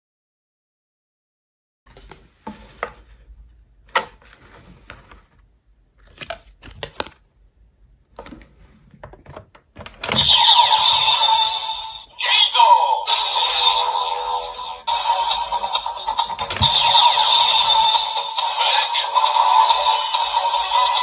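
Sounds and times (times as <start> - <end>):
toy electronic sound effect: 10.0 - 21.0.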